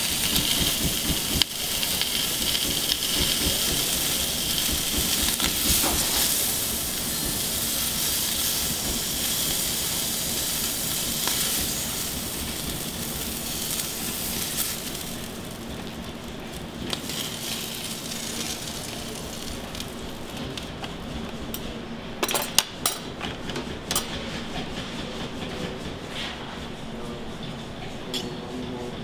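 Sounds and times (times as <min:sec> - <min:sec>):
seafood sizzling on a griddle: 0:00.0 - 0:20.3.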